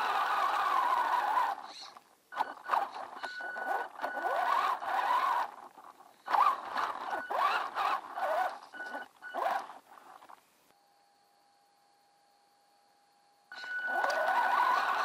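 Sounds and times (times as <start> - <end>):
electric motor whining: 2.4 - 9.7, 13.6 - 15.0.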